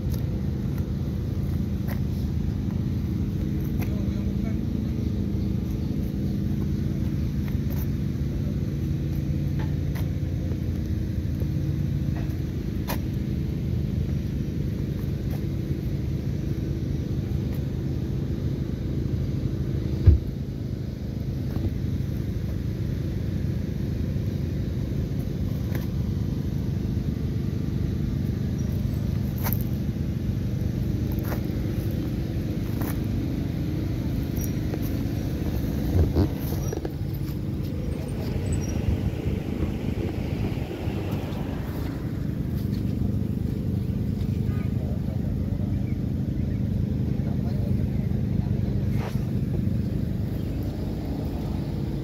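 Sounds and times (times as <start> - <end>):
car engine idling: 0.0 - 52.0
thump: 20.0 - 20.3.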